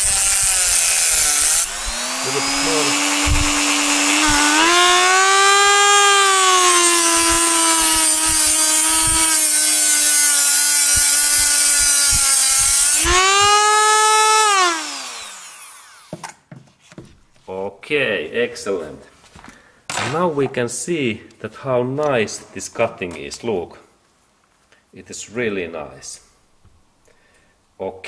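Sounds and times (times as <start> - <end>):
rotary tool grinding metal: 0.0 - 16.2.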